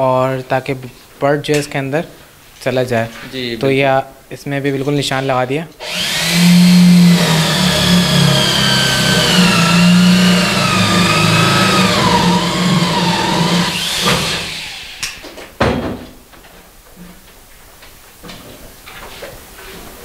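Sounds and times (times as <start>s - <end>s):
electric drill boring wood: 5.8s - 15.2s.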